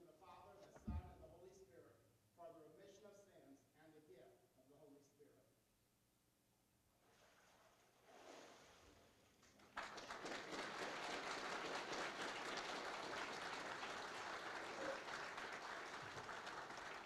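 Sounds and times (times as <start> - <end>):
crowd applauding: 9.5 - 17.0.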